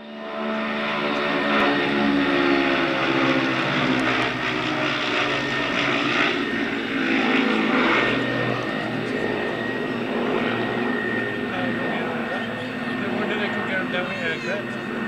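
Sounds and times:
propeller aircraft engines droning: 0.0 - 15.0.

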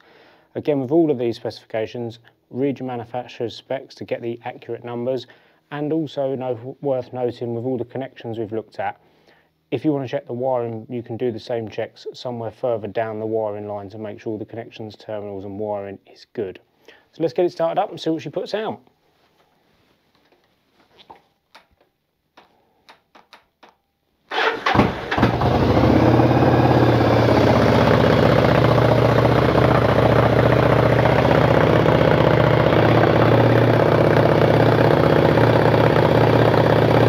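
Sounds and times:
motorcycle engine starting and idling: 24.3 - 37.0.

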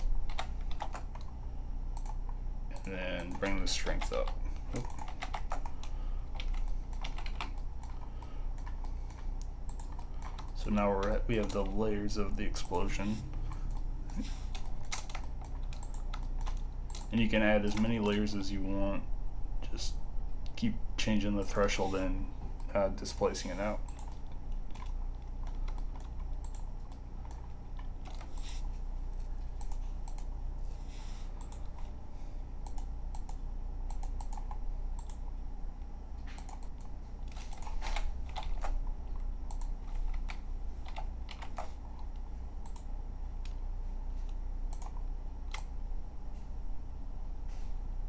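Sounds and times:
computer keyboard typing: 0.0 - 1.3, 2.0 - 11.9, 14.5 - 18.2, 23.2 - 28.5, 32.6 - 35.2, 36.3 - 42.9, 44.7 - 45.7
steady low hum: 0.0 - 48.0.

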